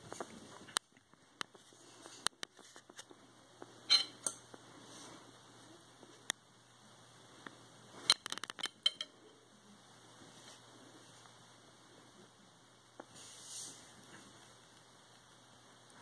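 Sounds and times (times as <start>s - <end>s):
rat eating with small clicks: 14.0s - 16.0s.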